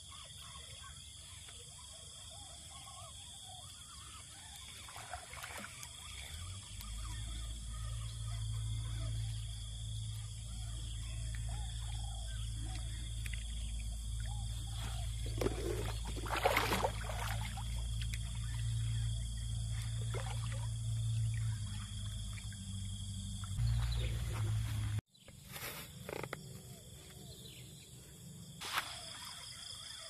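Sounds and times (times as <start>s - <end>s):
fish thrashing and splashing: 13.2s - 18.9s.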